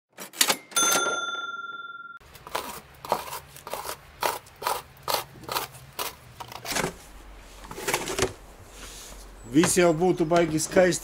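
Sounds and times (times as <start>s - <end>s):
bright ringing chime: 0.8s - 2.2s.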